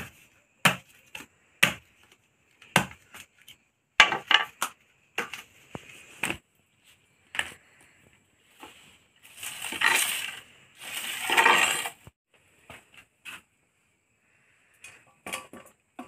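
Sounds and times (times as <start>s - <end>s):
dry twigs crunching and rustling: 9.2s - 12.0s.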